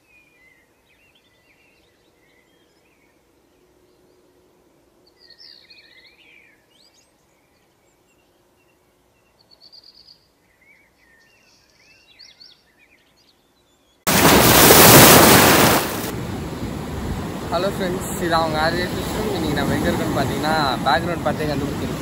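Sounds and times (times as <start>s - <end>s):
loud surf: 14.1s - 22.0s
wind noise: 14.1s - 22.0s.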